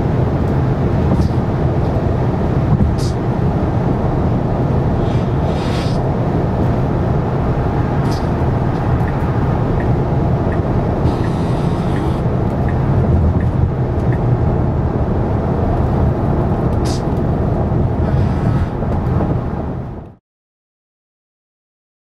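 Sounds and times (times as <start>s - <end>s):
car road and wind noise: 0.0s - 20.2s.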